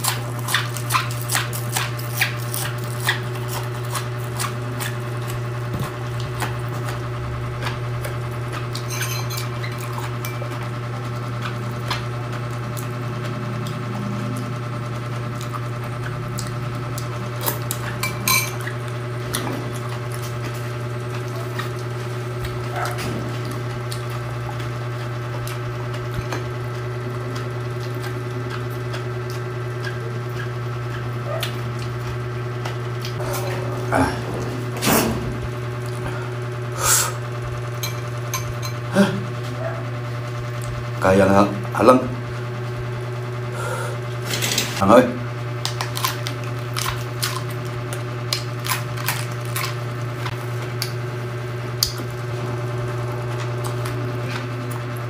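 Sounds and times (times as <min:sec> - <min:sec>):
chewing raw vegetables: 0:00.0 - 0:34.3, 0:45.6 - 0:55.0
steady low hum: 0:00.0 - 0:55.0
spoon clinking on ceramic bowl: 0:08.9 - 0:09.5.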